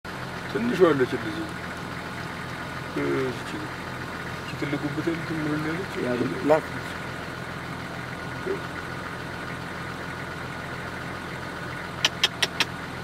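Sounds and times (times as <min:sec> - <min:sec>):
sharp clicks: 0:12.0 - 0:12.8.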